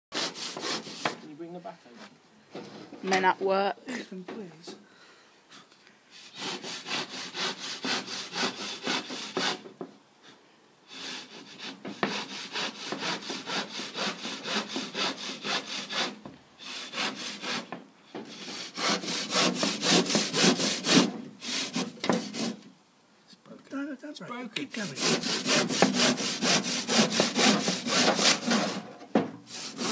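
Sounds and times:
handsaw cutting plasterboard: 0.1 - 1.2, 6.2 - 9.6, 10.9 - 17.7, 18.3 - 22.6, 24.8 - 28.9, 29.5 - 29.9.

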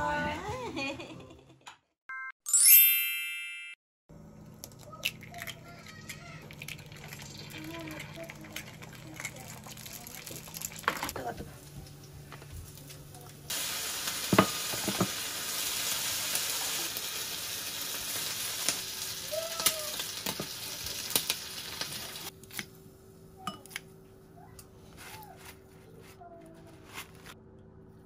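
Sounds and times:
bacon sizzling in frying pan: 12.6 - 22.3.

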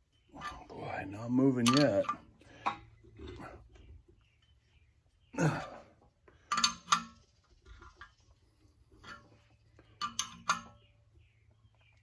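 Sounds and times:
short strained sounds: 5.3 - 6.9.

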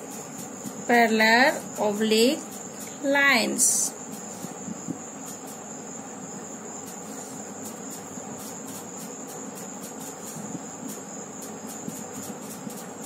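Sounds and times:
crickets chirring: 0.0 - 13.0
faint ticks: 6.8 - 13.0.

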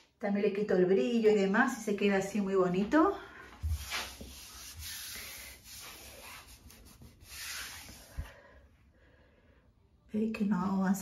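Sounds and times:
hand swishing across vinyl film: 3.6 - 8.3.

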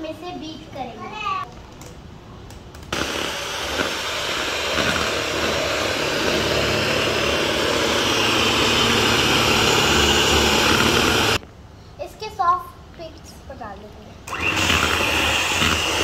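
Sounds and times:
electric hand mixer whipping cream: 2.9 - 11.4, 14.3 - 16.0.

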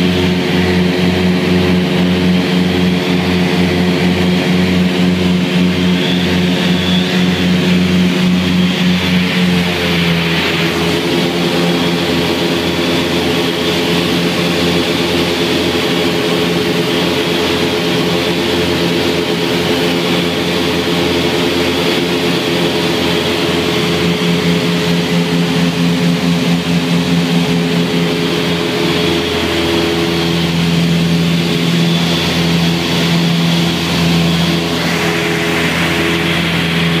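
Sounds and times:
aircraft engines droning in cabin: 0.0 - 37.0.

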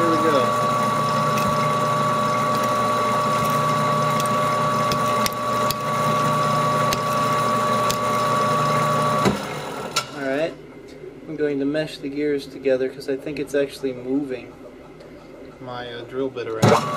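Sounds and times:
lathe motor whine: 0.0 - 10.0.

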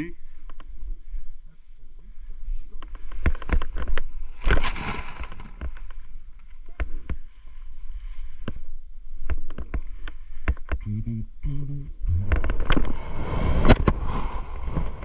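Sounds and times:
rush of fabric and air: 4.2 - 6.2, 12.8 - 15.0.

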